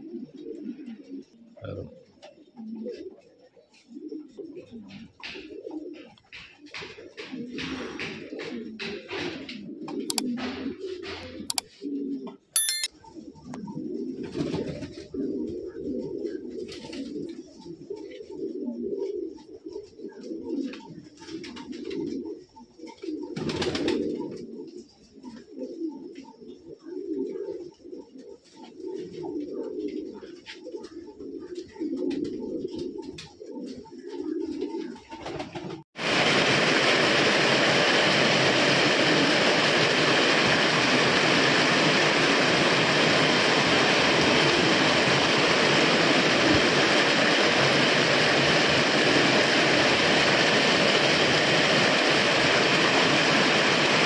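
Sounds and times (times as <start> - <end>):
pigeons cooing: 0.0 - 35.8.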